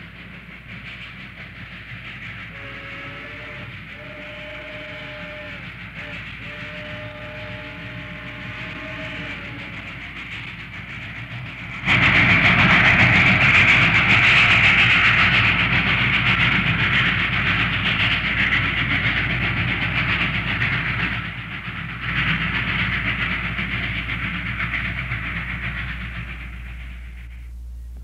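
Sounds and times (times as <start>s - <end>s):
steam locomotive rushing: 0.0s - 28.0s
low rumble: 23.4s - 28.0s.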